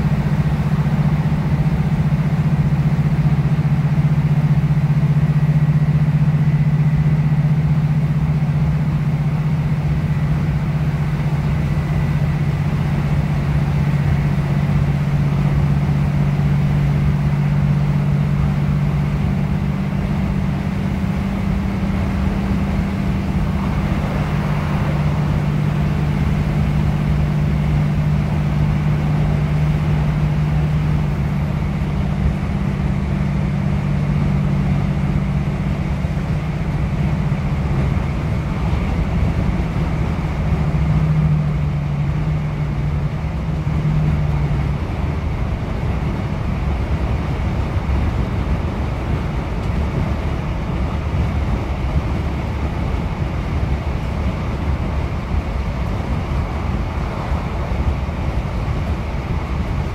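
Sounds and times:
train diesel engine drone: 0.0s - 59.9s
wheel and rail noise: 0.0s - 59.9s.

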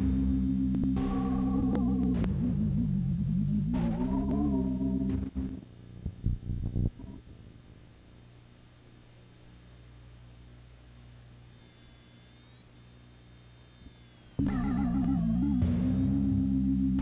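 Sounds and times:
electrical mains hum: 0.0s - 17.0s
faint high whine: 0.0s - 17.0s.

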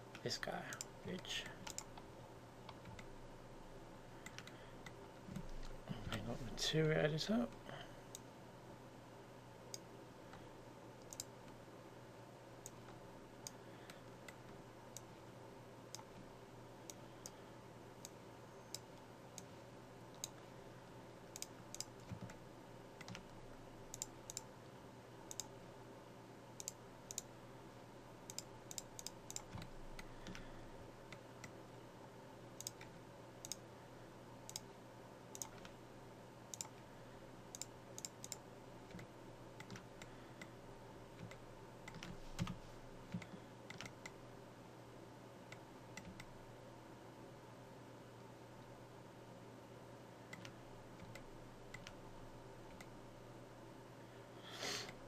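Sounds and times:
steady hum: 0.0s - 55.0s
mouse and keyboard clicking: 0.7s - 3.1s, 4.2s - 6.2s, 11.0s - 11.6s, 23.9s - 24.5s, 28.3s - 30.5s, 32.6s - 33.6s, 35.3s - 35.8s, 37.5s - 40.5s, 41.2s - 44.2s, 50.3s - 52.0s.

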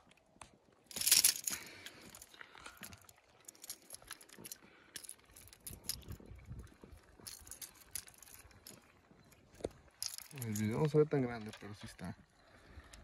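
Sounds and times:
small clicks and rattles: 0.9s - 6.3s, 7.2s - 8.9s, 9.5s - 12.0s.

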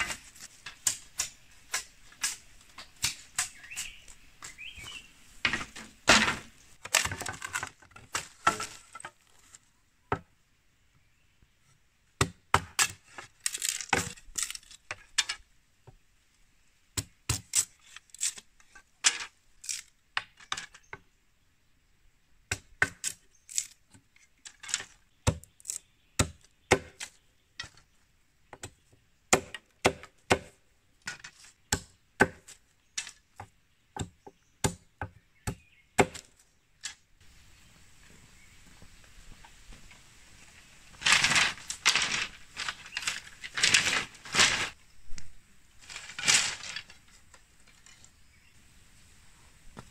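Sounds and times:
machete chopping bamboo: 0.0s - 4.1s, 12.2s - 14.8s, 17.0s - 18.4s, 22.5s - 23.8s, 25.2s - 27.1s, 28.6s - 36.4s
bamboo strips clattering: 0.0s - 9.8s, 12.6s - 15.5s, 17.3s - 21.0s, 22.8s - 27.9s, 29.3s - 33.5s, 40.9s - 48.2s.

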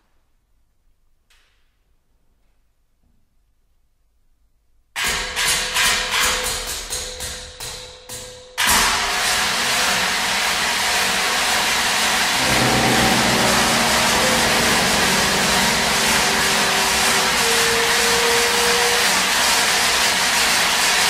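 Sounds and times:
loud dense noise: 11.7s - 21.0s
percussion strikes: 12.1s - 21.0s
low held tones: 12.3s - 20.3s.

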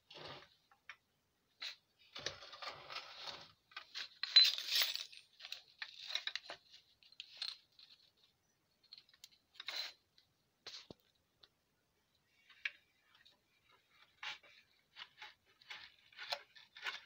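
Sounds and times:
metal parts clinking and rattling: 3.7s - 8.1s.

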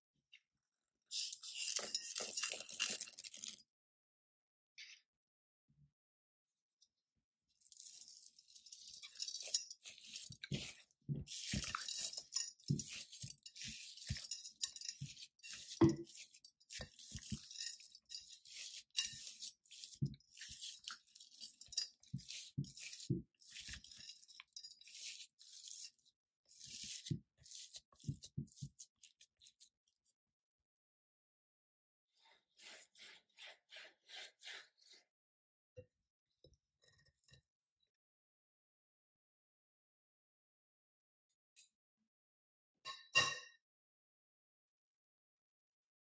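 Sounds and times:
ingredients scraping and rustling in a bowl: 1.1s - 3.6s, 7.5s - 30.2s, 32.2s - 35.1s.

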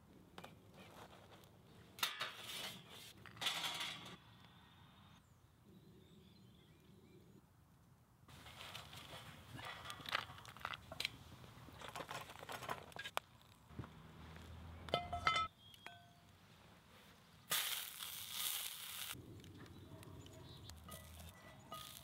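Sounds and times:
metallic ring: 15.0s - 16.2s
food sizzling in a skillet: 17.6s - 19.2s
chestnuts rattling on grill pan: 20.8s - 22.0s.

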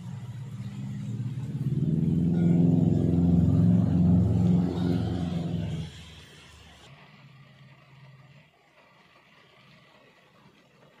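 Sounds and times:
vehicle engine passing close by: 0.0s - 6.2s.

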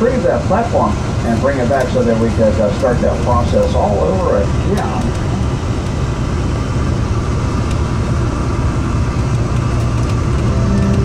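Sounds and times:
bus engine and tyre drone: 0.0s - 11.0s.

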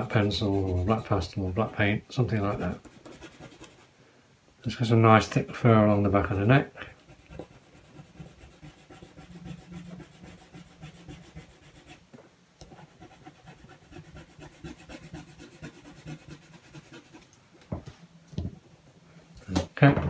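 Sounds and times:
pencil scratching on card: 0.0s - 1.8s, 2.4s - 3.9s, 6.9s - 12.0s, 12.6s - 17.3s.

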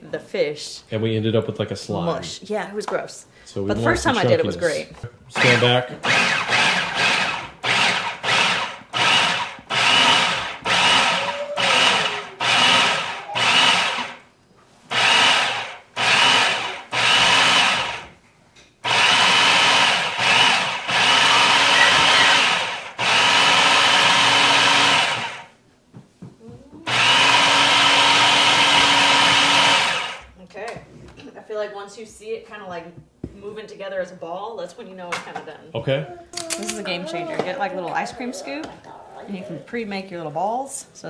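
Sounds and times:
food processor chopping: 5.4s - 14.2s, 14.9s - 18.1s, 18.8s - 25.5s, 26.9s - 30.3s.

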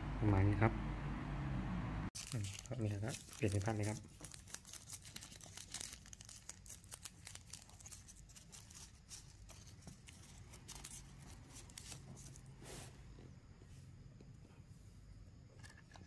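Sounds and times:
plastic packet crinkling: 2.2s - 12.2s.

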